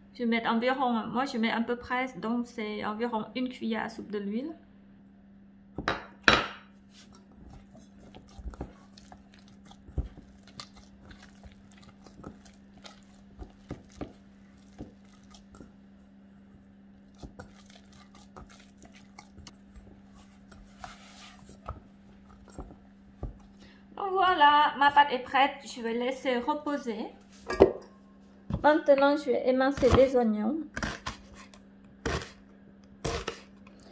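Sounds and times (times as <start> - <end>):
steady low hum: 0.0 - 33.9
hands kneading dough: 6.8 - 23.7
dough squelches and taps: 7.0 - 15.8, 17.1 - 23.5.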